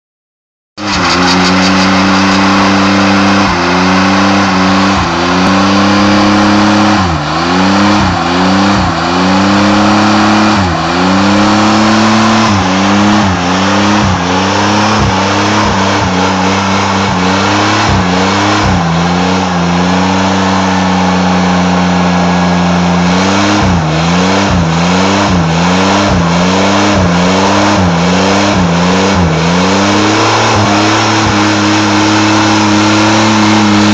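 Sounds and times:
truck engine revving high: 0.8 - 33.9.

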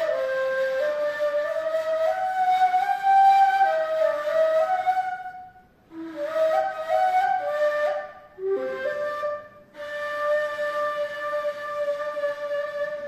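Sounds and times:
breathy cane flute solo: 0.0 - 13.0.

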